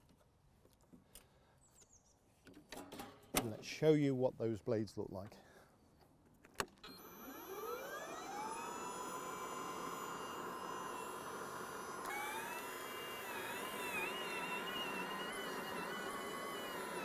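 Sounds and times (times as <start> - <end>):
mower motor whine: 6.6 - 17.0.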